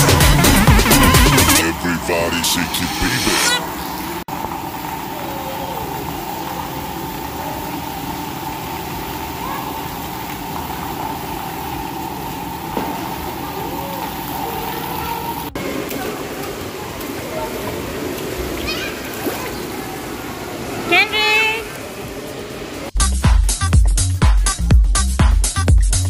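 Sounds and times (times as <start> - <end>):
water jets spraying: 0.0 - 23.0
faint children's voices: 5.0 - 11.0, 13.0 - 22.9.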